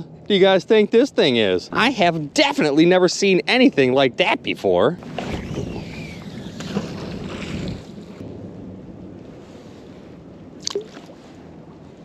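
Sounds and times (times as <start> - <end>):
wind on microphone: 4.0 - 12.0
lapping water: 10.6 - 11.2
splashing rushing water: 10.6 - 11.4.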